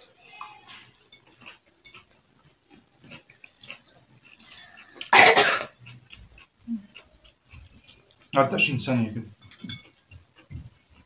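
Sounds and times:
people chewing and eating: 0.0 - 11.0
fork clicking on plate: 9.4 - 10.4.

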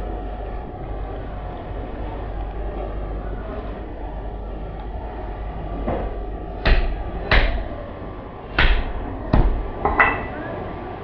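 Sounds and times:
hatchet chopping on wooden block: 6.6 - 7.6, 8.6 - 9.6.

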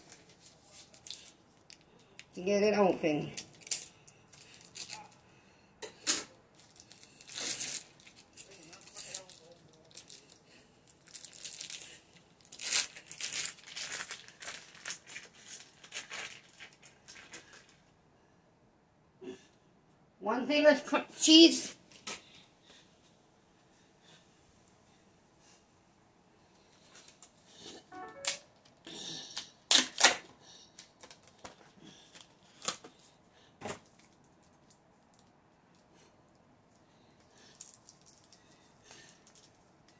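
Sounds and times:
foil wrapper crinkling and tearing: 0.0 - 2.2, 3.4 - 5.2, 6.5 - 17.8, 29.7 - 33.1.

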